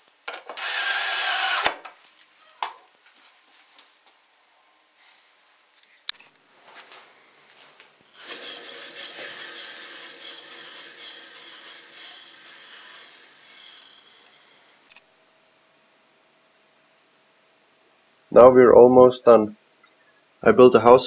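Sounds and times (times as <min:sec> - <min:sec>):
disc sander motor rushing hiss: 0:08.2 - 0:14.9.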